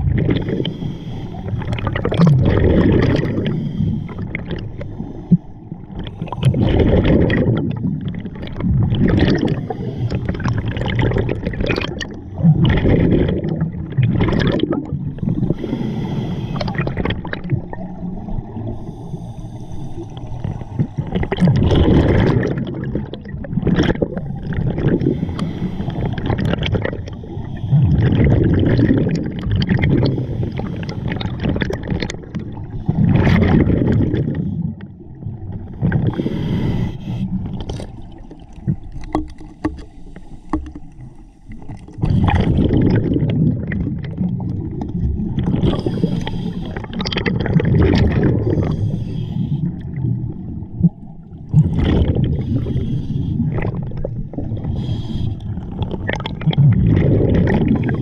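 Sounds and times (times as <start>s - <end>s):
bubbles gurgling: 0.0s - 0.8s, 1.4s - 4.9s, 5.7s - 18.8s, 20.2s - 39.8s, 41.5s - 58.0s
scuba regulator breathing: 0.3s - 2.0s, 3.0s - 7.0s, 9.3s - 10.7s, 15.2s - 17.2s, 18.6s - 22.2s, 24.1s - 28.5s, 29.9s - 31.6s, 35.7s - 42.8s, 45.4s - 47.1s, 48.2s - 50.0s, 52.1s - 56.0s, 57.4s - 58.0s.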